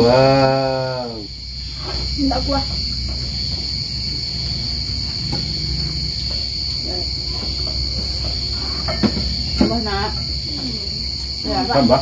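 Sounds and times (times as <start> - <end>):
crickets trilling: 0.0 - 12.0
tableware clicking: 7.6 - 9.8.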